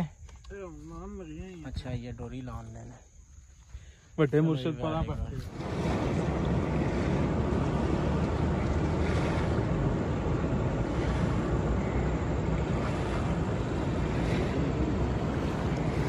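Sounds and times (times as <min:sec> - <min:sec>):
wind on microphone: 0:04.8 - 0:16.0
river water rushing: 0:05.5 - 0:16.0.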